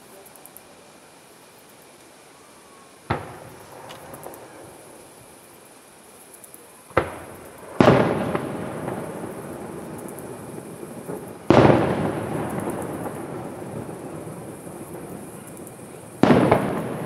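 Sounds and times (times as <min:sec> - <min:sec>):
firework shells bursting: 0:03.1 - 0:05.2, 0:06.9 - 0:17.0.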